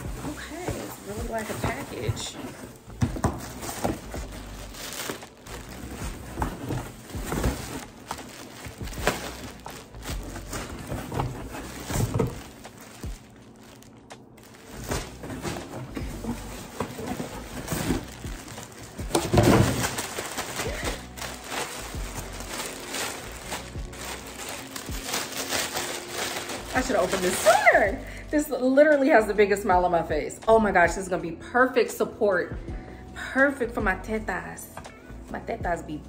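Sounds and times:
cardboard box rustling: 0:00.0 - 0:27.8
plastic garment bags crinkling: 0:00.0 - 0:28.8.

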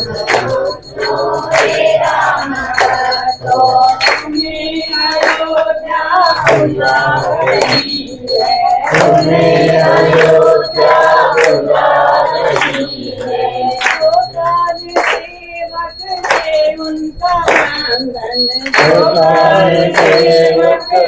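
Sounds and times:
group singing devotional song: 0:00.0 - 0:21.0.

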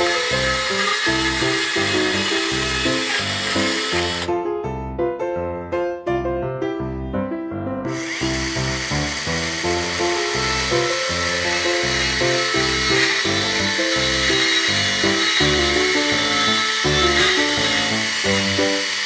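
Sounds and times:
miniature chainsaw cutting wood: 0:00.0 - 0:04.3, 0:07.9 - 0:19.0.

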